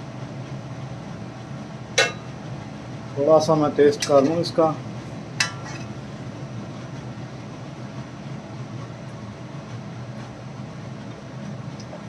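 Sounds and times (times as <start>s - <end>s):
low background hum: 0.0s - 12.0s
metal spoon clinking on iron pan: 2.0s - 2.3s, 5.4s - 5.9s.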